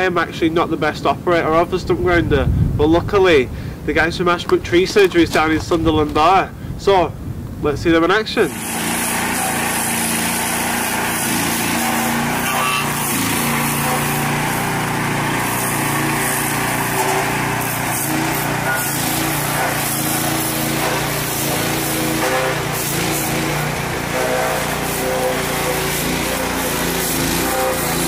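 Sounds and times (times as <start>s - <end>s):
cutter wheel grinding wood: 8.4s - 28.0s
stump grinder engine running: 8.5s - 28.0s.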